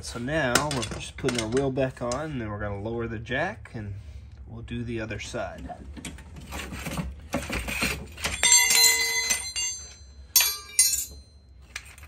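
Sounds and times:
scissor jack rattling and scraping: 6.4 - 9.6
loud ringing metallic clink: 8.3 - 11.6.

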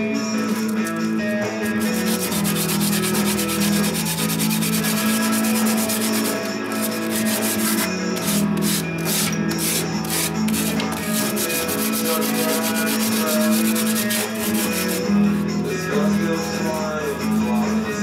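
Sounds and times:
background music with chords: 0.0 - 18.0
pastel scratching on paper: 1.8 - 15.1.

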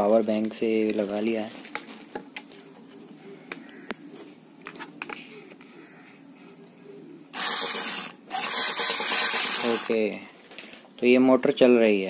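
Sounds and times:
faint steady hum: 0.0 - 11.8
wires and plastic handling: 0.3 - 5.7
sharp electrical clicks: 7.4 - 10.0.

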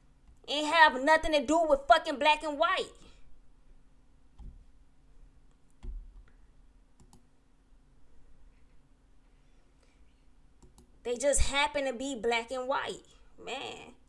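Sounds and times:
low steady hum: 0.0 - 14.0
faint computer clicks: 7.0 - 7.3.

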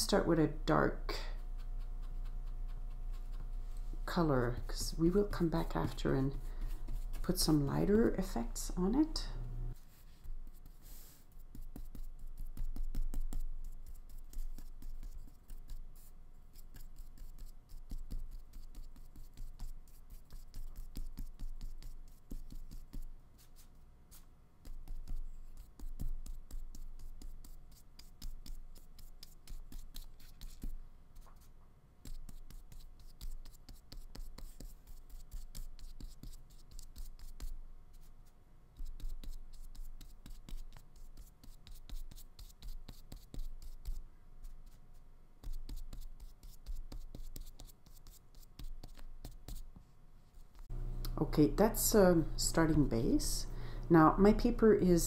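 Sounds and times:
paintbrush scrubbing on paper: 1.2 - 9.0, 9.7 - 49.7.

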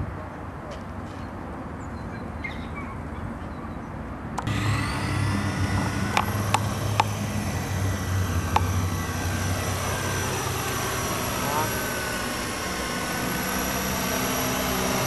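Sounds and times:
model helicopter motor whine: 4.4 - 15.0
sharp clicks: 5.3 - 7.5, 8.5 - 9.2.

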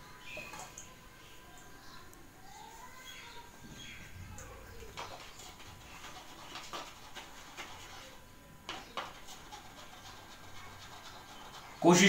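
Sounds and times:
plastic stick scratching: 4.9 - 11.9.

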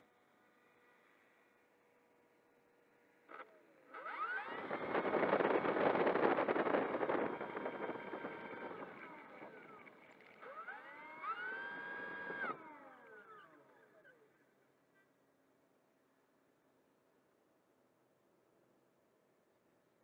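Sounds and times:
electric motor whine: 0.0 - 14.4.

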